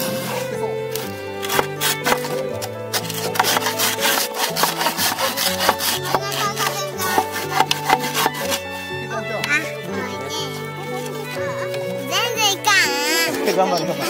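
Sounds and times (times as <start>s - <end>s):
hand saw cutting bamboo: 0.0s - 8.8s
background music: 0.0s - 14.0s.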